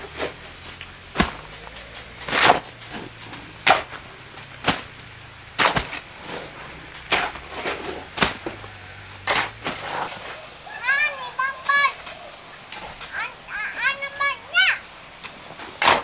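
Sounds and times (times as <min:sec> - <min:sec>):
shovel scraping wet cement: 0:02.2 - 0:04.0, 0:05.6 - 0:08.6, 0:09.2 - 0:10.4, 0:15.6 - 0:16.0.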